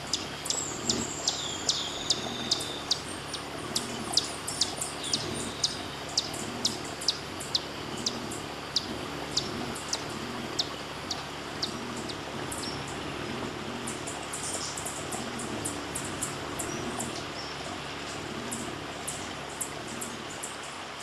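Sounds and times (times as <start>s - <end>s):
bird chipping: 0.0s - 13.0s.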